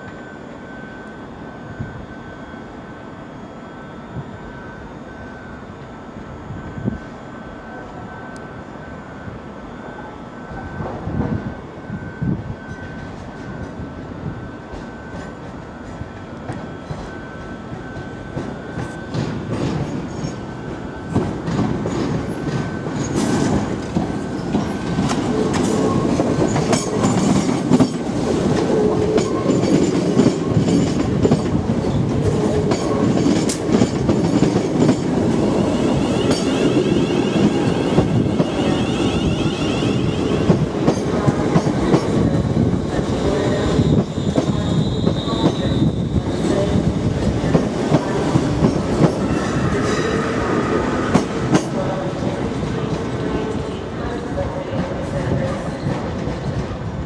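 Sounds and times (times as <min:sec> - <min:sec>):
high wheel squeal: 0:35.5 - 0:40.5, 0:49.1 - 0:51.6.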